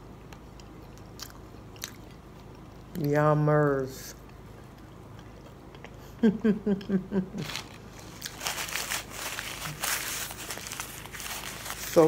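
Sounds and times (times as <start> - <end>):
paper napkin crinkling: 7.4 - 12.0.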